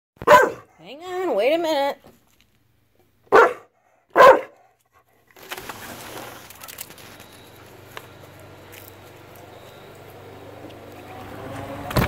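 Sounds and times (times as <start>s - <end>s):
dog barking: 0.2s - 0.8s, 3.3s - 4.7s.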